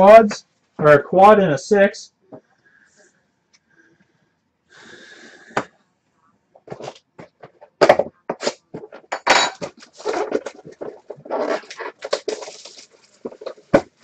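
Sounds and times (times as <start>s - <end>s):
crackling rustles scrapes and taps: 6.6s - 14.0s
cardboard box rustling: 9.7s - 14.0s.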